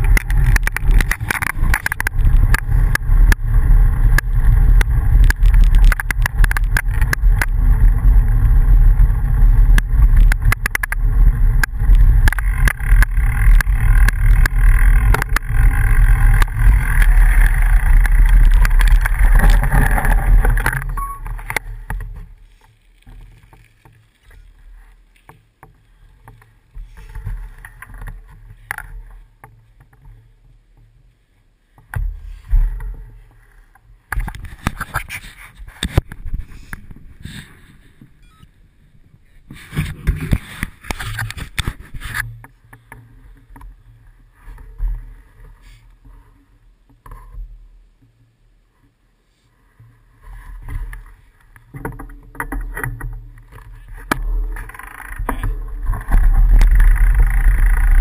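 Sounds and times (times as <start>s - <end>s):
wind rumble: 0.0s - 23.5s, 50.2s - 58.0s
road vibration rumble: 0.0s - 30.4s, 50.2s - 58.0s
bicycle tyres crackling on gravel: 0.0s - 30.6s, 50.3s - 58.0s.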